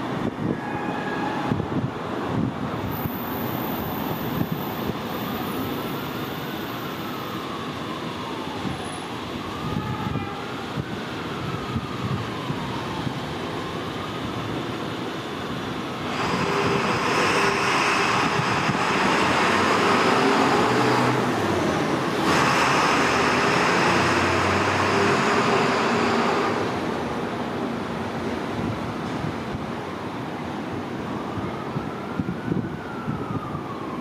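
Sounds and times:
subway train rumbling: 0:00.0 - 0:34.0
train rushing with held tones: 0:02.9 - 0:06.8, 0:16.0 - 0:21.1, 0:22.1 - 0:27.0.

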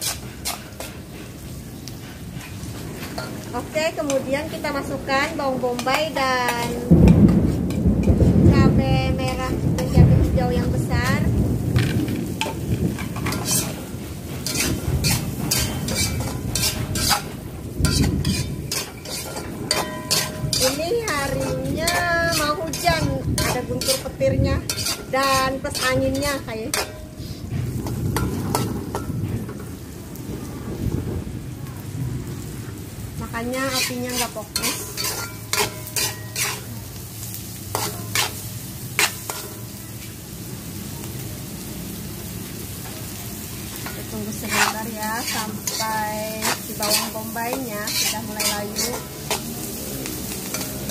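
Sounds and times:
metal spatula scraping a wok: 0:00.0 - 0:08.6, 0:09.2 - 0:10.6, 0:11.8 - 0:29.7, 0:33.5 - 0:40.2, 0:43.6 - 0:50.9
low rumble: 0:19.6 - 0:33.5.

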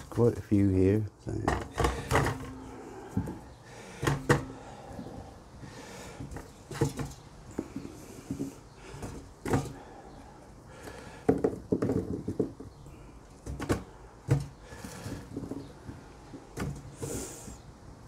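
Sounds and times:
potatoes knocking and thudding: 0:01.4 - 0:04.6, 0:06.2 - 0:09.9, 0:10.9 - 0:17.0.

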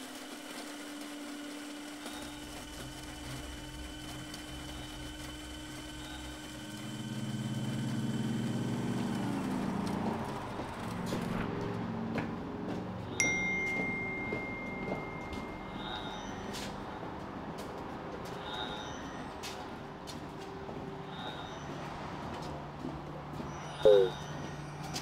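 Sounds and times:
high steady tone: 0:13.2 - 0:16.8.

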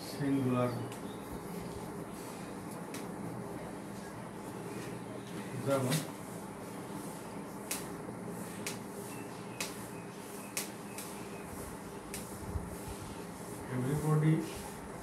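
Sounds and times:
room hum: 0:00.0 - 0:15.0
marker writing on whiteboard: 0:05.7 - 0:15.0.

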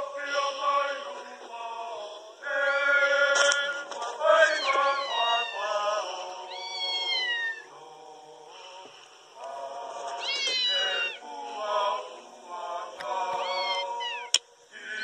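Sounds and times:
men singing a hymn: 0:00.0 - 0:15.0
cat meowing: 0:04.4 - 0:05.7, 0:06.5 - 0:07.7, 0:10.2 - 0:11.2, 0:13.4 - 0:14.4.

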